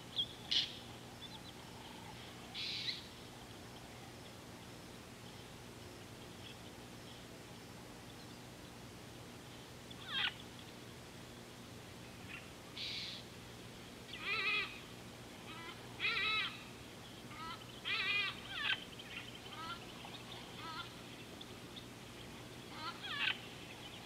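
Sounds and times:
steady low hum: 0.0s - 24.0s
animal wavering calls: 14.1s - 16.7s, 17.3s - 21.0s, 22.7s - 23.6s.

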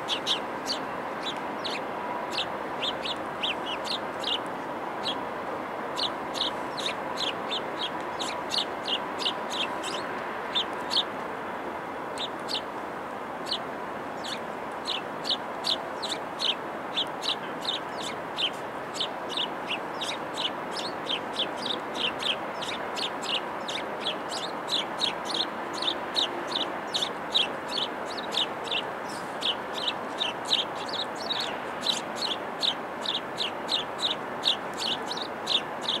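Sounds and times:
small bird chirping: 0.0s - 5.2s, 5.9s - 11.1s, 12.2s - 12.7s, 13.4s - 13.6s, 14.2s - 36.0s
steady background hum: 0.0s - 36.0s.

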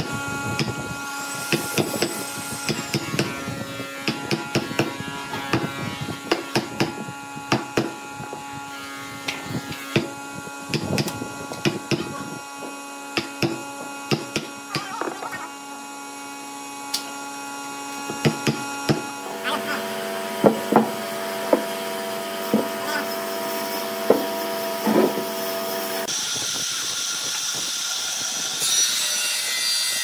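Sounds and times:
steady hum: 0.0s - 27.0s
chisel knocking in wood: 20.4s - 21.7s, 24.1s - 24.3s.

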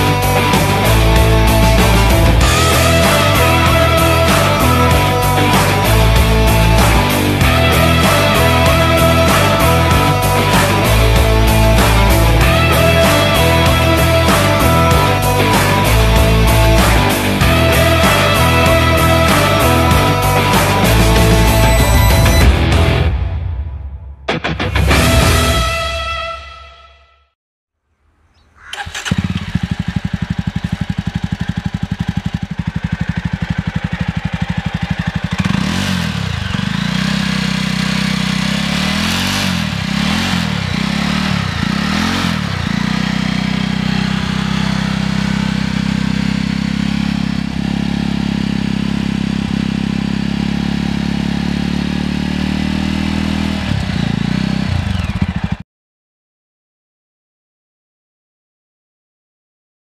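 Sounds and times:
motorcycle engine idling: 0.0s - 22.3s, 28.4s - 55.6s
motorcycle throttle blips: 28.3s - 55.6s.

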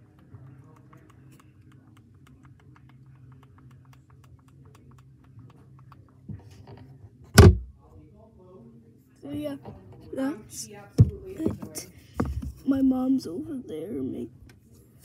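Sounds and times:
loud thump: 7.4s - 7.7s.

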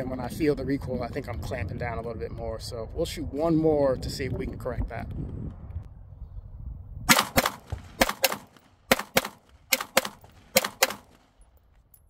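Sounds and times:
pistol shots: 7.1s - 11.4s.

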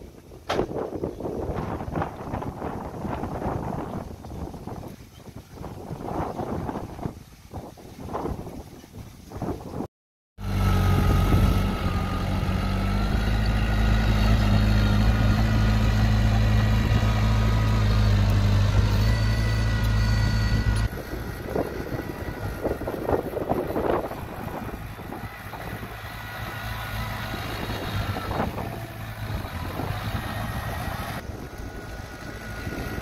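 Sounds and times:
rough wind-like noise: 0.0s - 33.0s
heavy machine engine with high whine: 10.4s - 33.0s.

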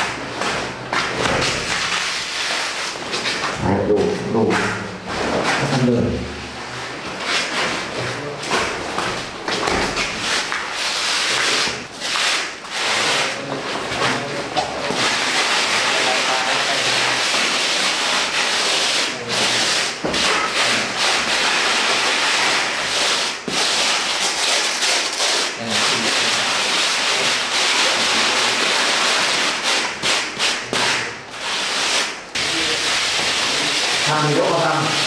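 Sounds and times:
foam scraping over plaster: 9.8s - 35.0s.

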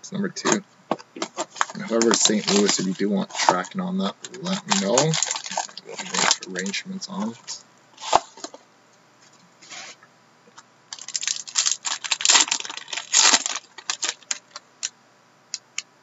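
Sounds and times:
wrapper tearing and crinkling: 1.2s - 8.6s, 10.9s - 14.9s.

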